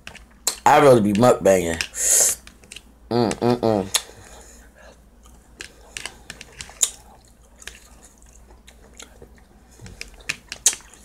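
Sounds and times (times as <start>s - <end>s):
person chewing food: 2.4s - 11.0s.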